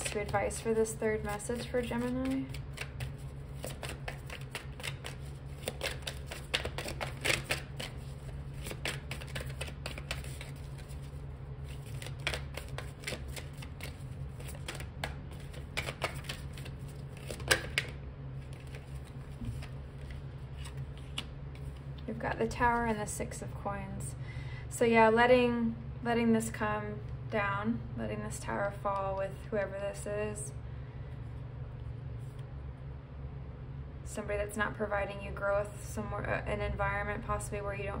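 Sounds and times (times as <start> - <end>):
cards being shuffled: 0.0 - 22.0.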